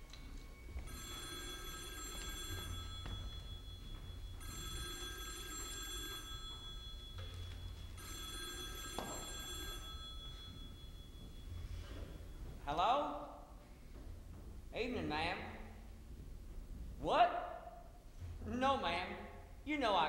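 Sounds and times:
telephone ringing: 0:00.3 - 0:12.6.

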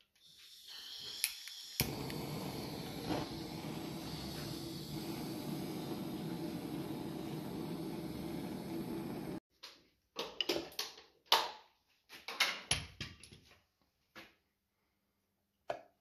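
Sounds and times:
torch flame hissing: 0:00.0 - 0:09.4.

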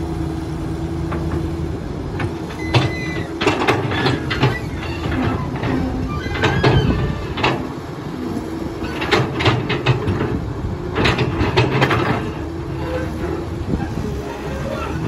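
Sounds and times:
diesel engine rumble: 0:00.0 - 0:15.0
excavator bucket metal clanks: 0:02.1 - 0:07.8, 0:08.8 - 0:15.0.

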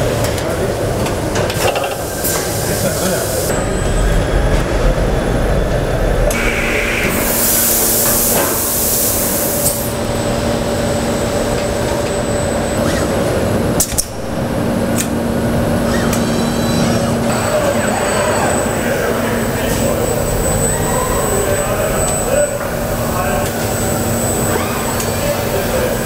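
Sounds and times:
machinery hum: 0:00.0 - 0:26.0
hissing air: 0:05.2 - 0:10.0.

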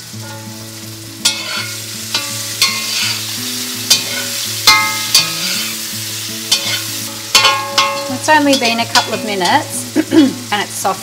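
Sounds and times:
sizzle of frying: 0:00.0 - 0:11.0
metal spatula scraping iron pan: 0:01.2 - 0:05.9, 0:06.5 - 0:09.7.

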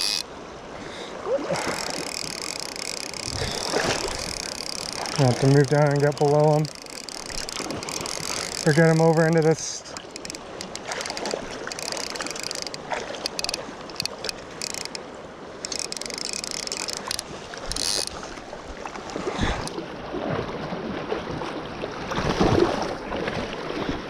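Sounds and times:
fly reel drag clicking: 0:00.0 - 0:00.3, 0:01.5 - 0:18.3
river current rushing: 0:00.0 - 0:20.2
water splashing and sloshing: 0:00.0 - 0:24.0.

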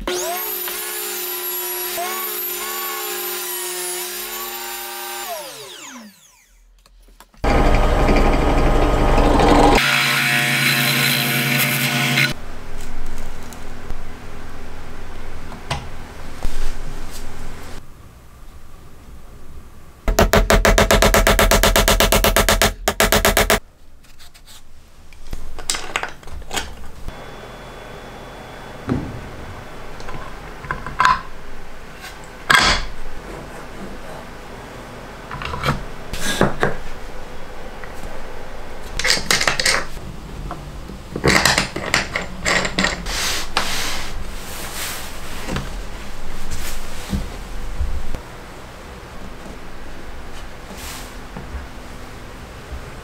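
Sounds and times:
power tool pulsing: 0:07.4 - 0:10.1.

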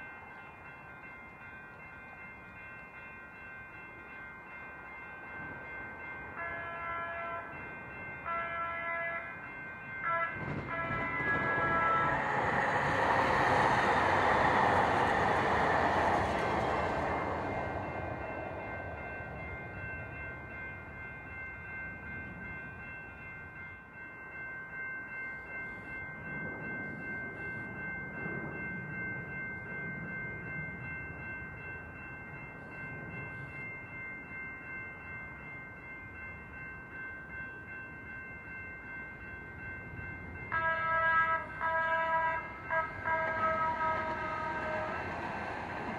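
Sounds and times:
train rumbling past: 0:04.5 - 0:22.6, 0:39.2 - 0:45.9
train air horn blasts: 0:06.4 - 0:07.6, 0:08.2 - 0:09.4, 0:10.0 - 0:12.3, 0:40.5 - 0:45.0.

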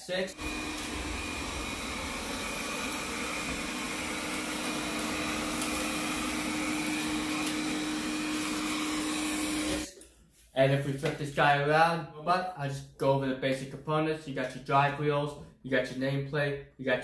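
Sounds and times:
robot vacuum whirring: 0:00.3 - 0:09.9.

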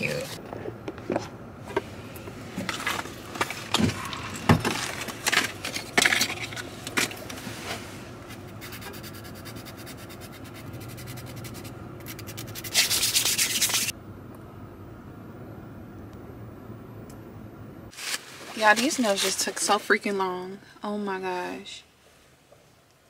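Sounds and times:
nail file rubbing fingernails: 0:08.6 - 0:13.9.

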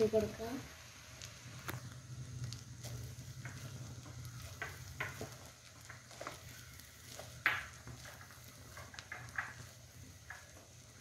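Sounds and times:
faint sizzle: 0:00.0 - 0:11.0
spatula scraping frying pan: 0:02.8 - 0:11.0.

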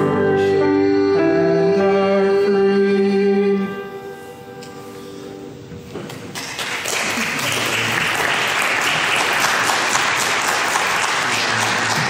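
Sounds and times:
crowd clapping: 0:06.1 - 0:12.0.

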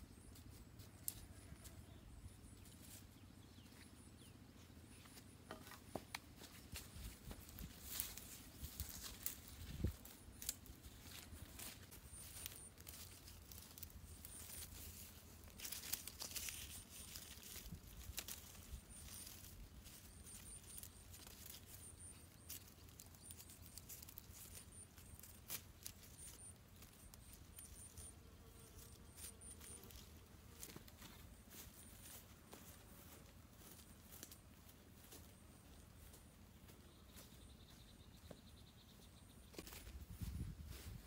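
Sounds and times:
leafy branches rustling: 0:06.7 - 0:28.1
twigs crackling: 0:07.5 - 0:28.1, 0:33.6 - 0:34.4.

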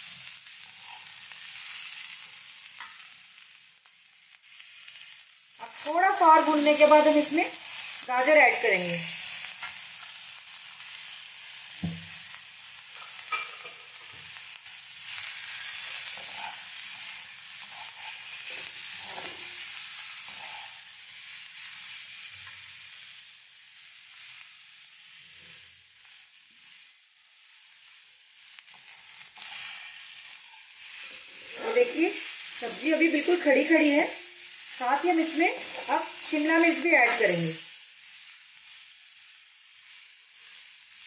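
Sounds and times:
vegetables sizzling in hot oil: 0:00.0 - 0:41.0
metal spatula scraping a pan: 0:13.0 - 0:14.2, 0:15.1 - 0:21.0, 0:28.6 - 0:32.2.

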